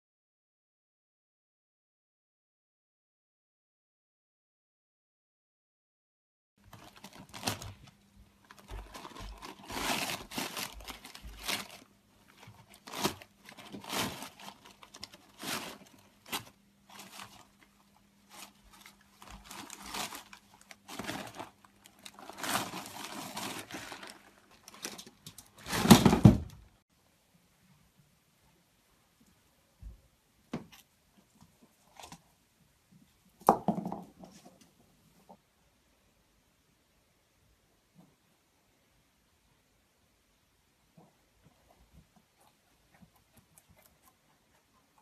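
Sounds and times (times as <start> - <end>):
plastic and paper rustling: 6.6 - 26.5.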